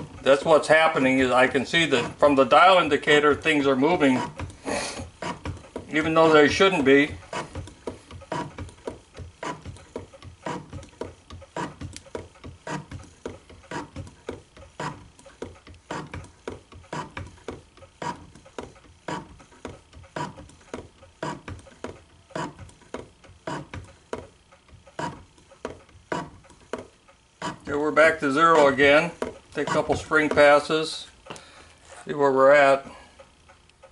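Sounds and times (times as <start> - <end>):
hand shaper cutting steel: 3.4 - 22.6, 29.6 - 30.6.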